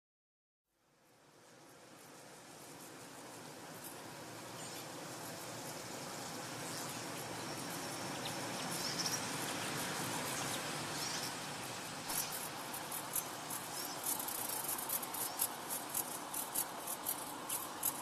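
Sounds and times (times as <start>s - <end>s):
hiss-like noise texture: 0.7s - 18.0s
quiet high clicks: 12.1s - 18.0s.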